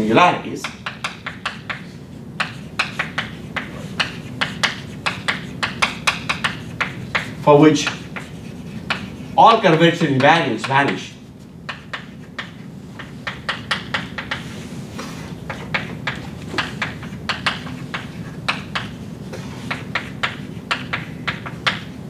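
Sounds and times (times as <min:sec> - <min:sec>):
low room hum: 0:00.0 - 0:22.0
chalk tapping on blackboard: 0:00.4 - 0:22.0.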